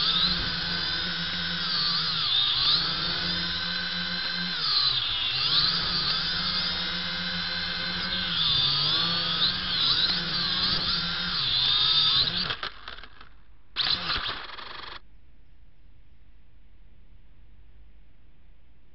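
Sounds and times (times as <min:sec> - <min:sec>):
quadcopter motors whining: 0:00.0 - 0:15.0.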